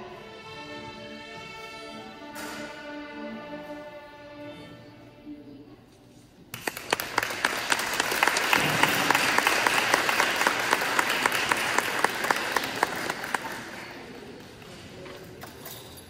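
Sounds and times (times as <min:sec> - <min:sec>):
audience applause: 0:06.5 - 0:14.8.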